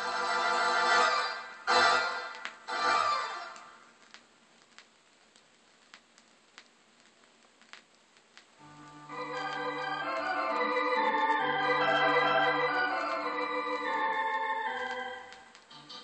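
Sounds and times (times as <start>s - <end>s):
electronic organ chords: 8.6s - 16.0s.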